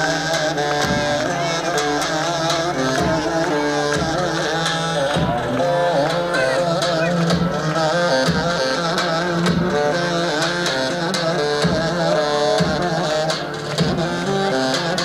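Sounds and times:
ornamented dance melody: 0.0 - 15.0
steady drum beat: 0.4 - 15.0.

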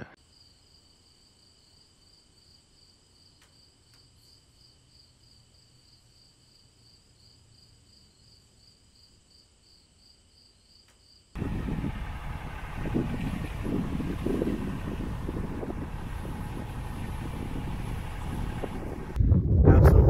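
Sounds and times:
pulsing high-pitched whine: 11.4 - 19.2.

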